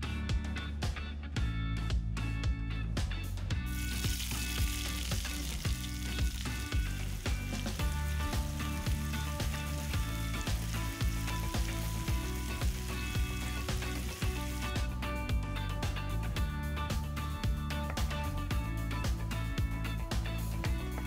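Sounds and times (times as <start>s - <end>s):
background music with beat: 0.0s - 21.0s
onions sizzling in oil: 3.7s - 14.9s.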